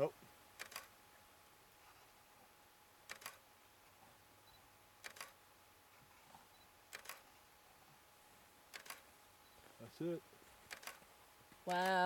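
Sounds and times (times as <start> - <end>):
camera shutter double click: 0.6 - 0.9, 3.1 - 3.4, 5.0 - 5.4, 6.9 - 7.2, 8.7 - 9.0, 10.7 - 11.0.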